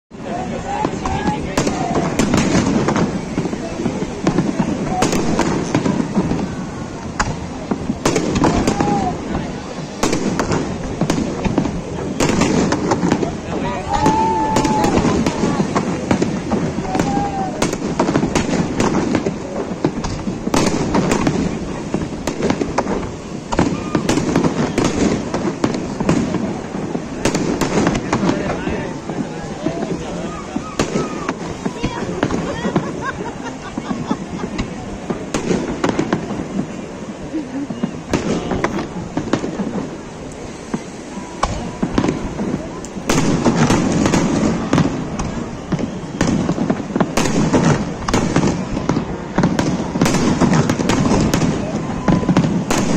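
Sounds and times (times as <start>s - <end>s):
fireworks bursting: 0.1s - 52.9s
fireworks crackling: 0.1s - 52.9s
rumble of explosions: 0.1s - 52.9s.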